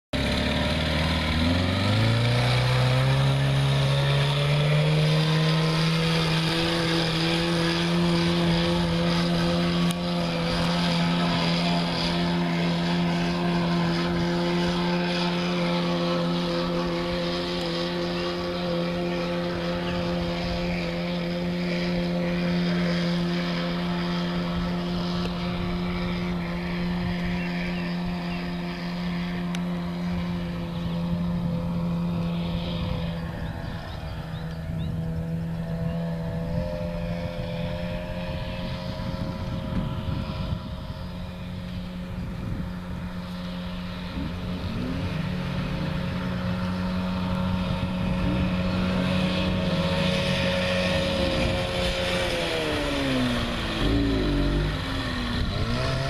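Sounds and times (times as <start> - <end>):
outboard motor running: 0.1 - 56.0.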